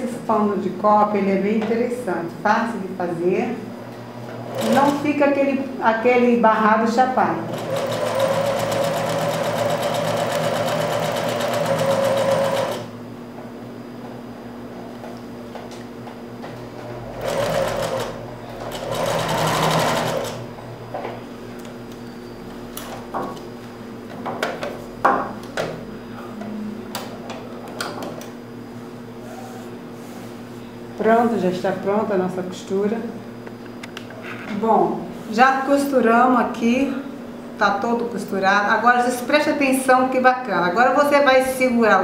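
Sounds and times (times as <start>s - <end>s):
electric sewing machine stitching: 4.5s - 5.0s, 7.5s - 12.9s, 17.0s - 20.5s.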